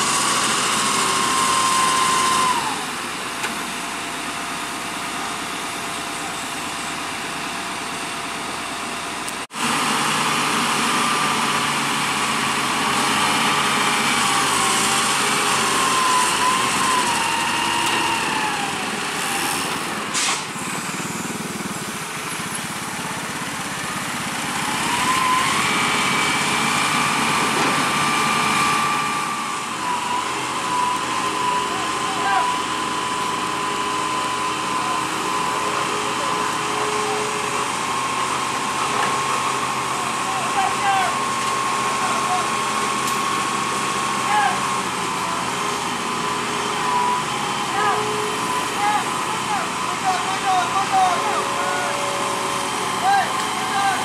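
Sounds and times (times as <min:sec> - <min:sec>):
excavator diesel engine running: 0:00.0 - 0:54.0
hydraulic whine: 0:00.0 - 0:54.0.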